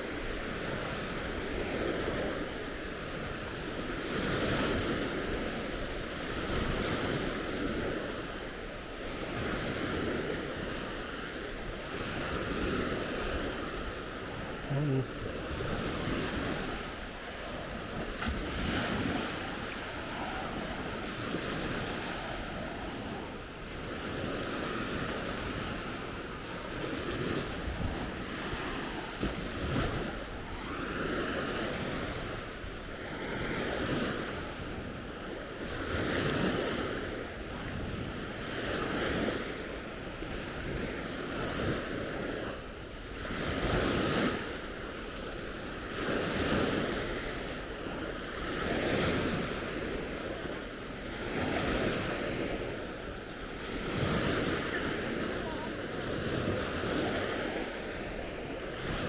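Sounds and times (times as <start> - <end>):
small waves breaking on beach: 0.0 - 59.0
wind on microphone: 15.2 - 35.1.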